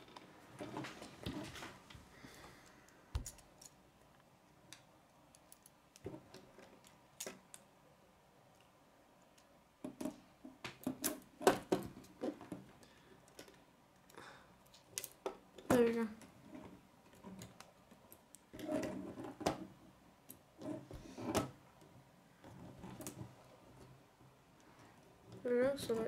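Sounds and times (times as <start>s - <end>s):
plastic pieces clicking together: 13.2s - 15.8s.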